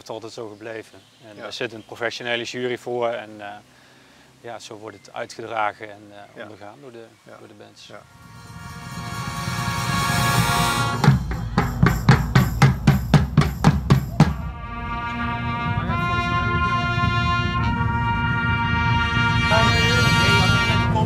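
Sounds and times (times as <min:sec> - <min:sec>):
brass chords: 0:08.0 - 0:21.0
loud drum strokes: 0:08.0 - 0:21.0.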